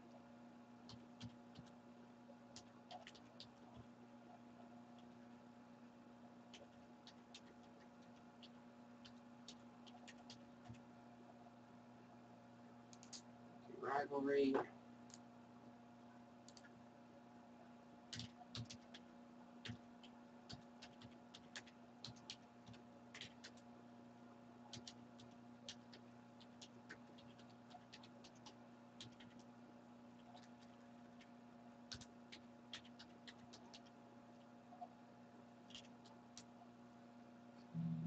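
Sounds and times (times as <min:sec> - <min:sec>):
steady low hum: 0:00.0 - 0:38.0
keyboard and mouse clicking: 0:00.9 - 0:01.7, 0:02.5 - 0:03.8, 0:06.5 - 0:10.8, 0:12.9 - 0:13.2, 0:16.4 - 0:16.8, 0:18.1 - 0:23.6, 0:24.7 - 0:29.5, 0:31.9 - 0:33.9, 0:35.7 - 0:36.5.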